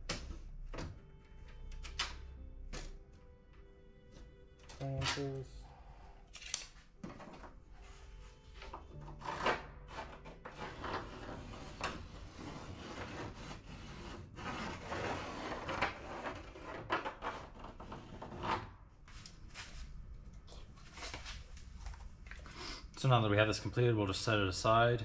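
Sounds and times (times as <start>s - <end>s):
wood rubbing and scraping: 7.0s - 19.8s.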